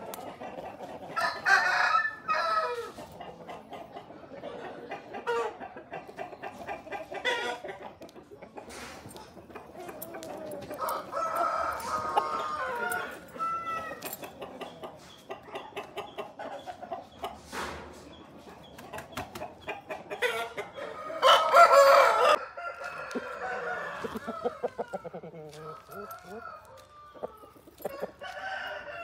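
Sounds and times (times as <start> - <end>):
roosters crowing: 0.0 - 3.2, 9.6 - 14.4, 20.2 - 29.0
rooster clucking: 0.0 - 29.0.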